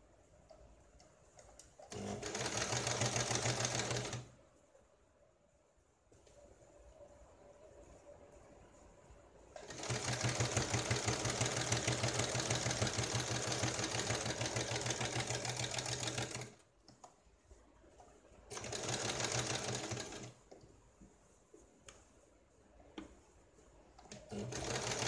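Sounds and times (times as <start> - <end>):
sewing machine stitching: 1.8 - 4.3, 9.6 - 16.6, 18.5 - 20.4, 24.0 - 25.0.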